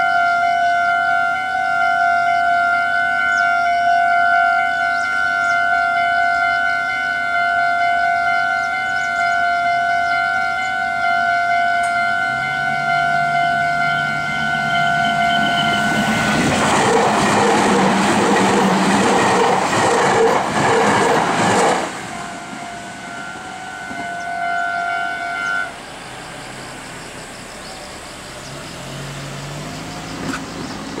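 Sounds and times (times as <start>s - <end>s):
level-crossing warning bell: 0.0s - 28.3s
electric train rushing past: 4.4s - 31.0s
train wheels clicking on rail joints: 11.8s - 22.8s, 28.4s - 31.0s.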